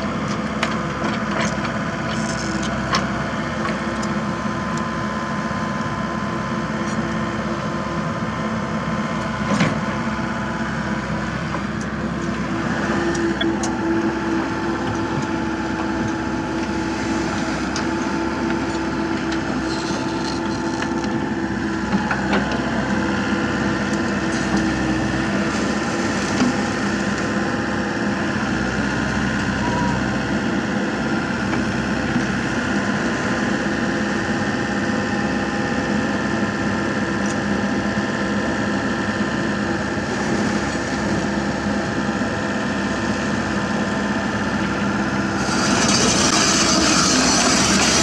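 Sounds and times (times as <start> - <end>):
excavator diesel engine running: 0.0 - 48.0.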